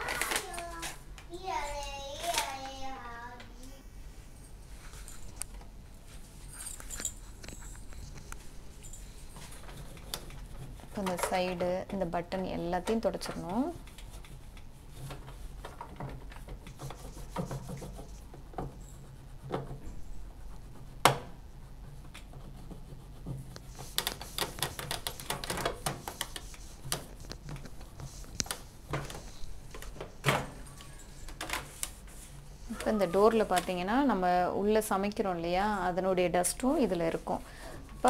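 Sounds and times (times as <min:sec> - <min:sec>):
wet wipe rubbing plastic: 0:13.5 - 0:29.3.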